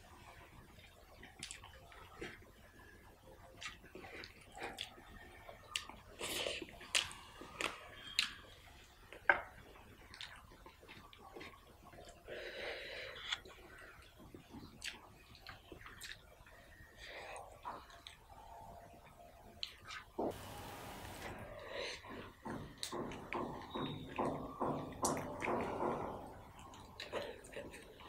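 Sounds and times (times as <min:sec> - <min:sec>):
chewing with wet mouth clicks: 0:00.7 - 0:02.5, 0:03.4 - 0:12.3, 0:13.1 - 0:18.5, 0:19.6 - 0:20.2, 0:26.6 - 0:28.0.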